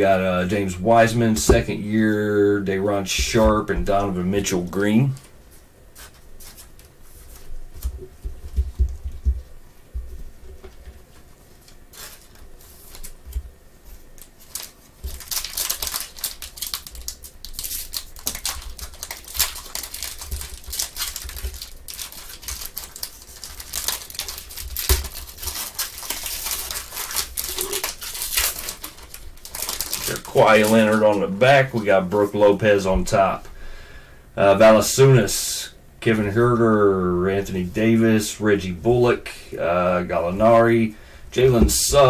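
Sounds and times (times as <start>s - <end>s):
foil wrapper tearing and crinkling: 14.1s - 32.3s.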